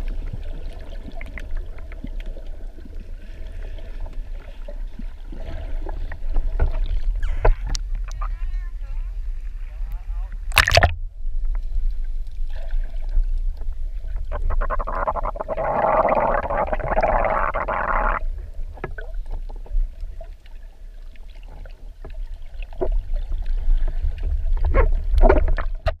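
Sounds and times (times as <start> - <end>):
underwater low rumble: 0.0 - 26.0
rushing bubbling water: 10.5 - 11.0, 12.4 - 20.4.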